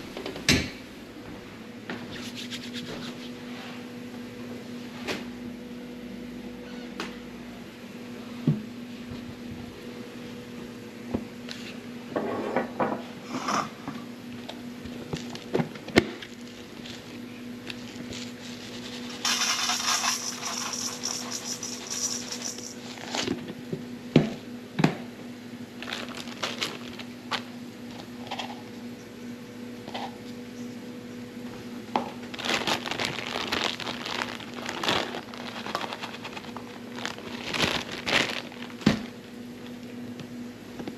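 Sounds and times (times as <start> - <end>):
steady low hum: 0.0 - 40.9
plastic bag crinkling: 16.2 - 23.4, 25.8 - 27.5, 32.2 - 39.8
oats poured into metal bowl: 18.7 - 22.9.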